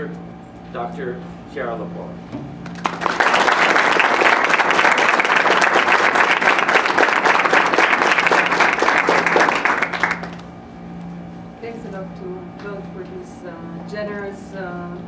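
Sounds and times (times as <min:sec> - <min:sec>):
audience applauding: 0:02.6 - 0:10.5.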